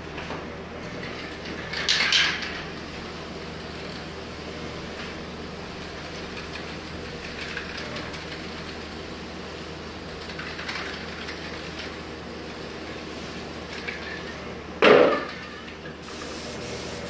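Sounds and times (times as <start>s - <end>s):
hissing spray bursts: 16.0s - 17.0s
paint sprayer pump humming: 16.0s - 17.0s.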